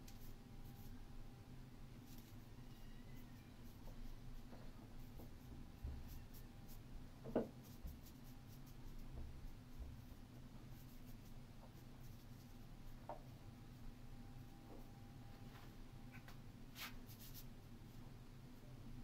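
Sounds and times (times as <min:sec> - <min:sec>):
ink brush stroking paper: 0:02.1 - 0:04.2, 0:16.8 - 0:17.5.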